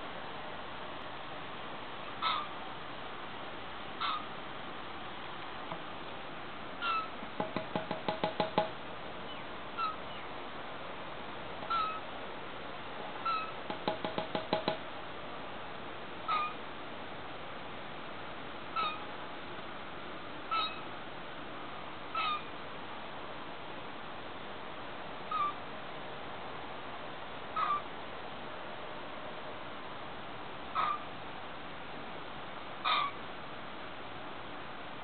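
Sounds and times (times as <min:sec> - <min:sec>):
young bird squeaky calls: 0:02.2 - 0:02.5, 0:04.0 - 0:04.3, 0:06.8 - 0:07.2, 0:09.3 - 0:10.2, 0:11.6 - 0:12.1, 0:13.2 - 0:13.6, 0:16.3 - 0:16.6, 0:18.8 - 0:19.1, 0:20.5 - 0:20.9, 0:22.1 - 0:22.5, 0:25.3 - 0:25.6, 0:27.6 - 0:27.9, 0:30.8 - 0:31.0, 0:32.8 - 0:33.2.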